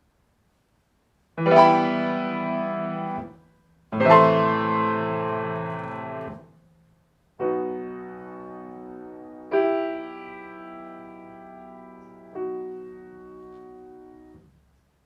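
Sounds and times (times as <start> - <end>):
grand piano chords: 1.4 - 14.7.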